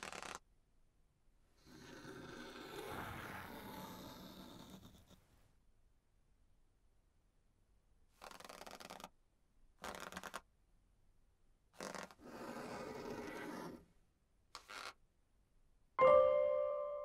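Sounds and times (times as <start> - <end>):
pen scratching on paper: 0.0 - 0.4, 1.6 - 5.2, 8.2 - 9.2, 9.8 - 10.5, 11.7 - 13.9, 14.6 - 15.0.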